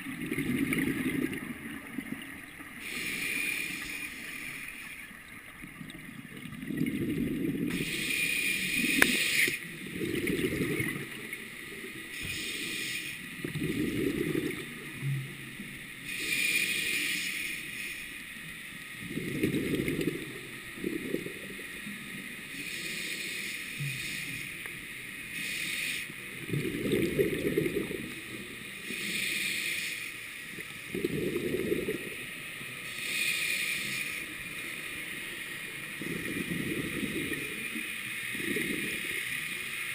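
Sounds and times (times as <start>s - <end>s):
regulator hissing inhale: 2.8s - 5.4s, 7.7s - 10.2s, 12.0s - 14.6s, 15.8s - 18.9s, 22.4s - 26.3s, 28.0s - 30.6s, 32.8s - 35.2s
bubbling exhale: 12.2s - 14.7s.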